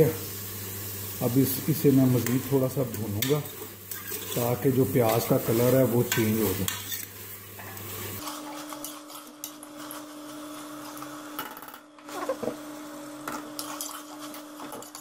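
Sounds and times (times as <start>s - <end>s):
food frying in oil: 0.0s - 11.4s
metal ladle scraping a pot: 3.9s - 4.5s.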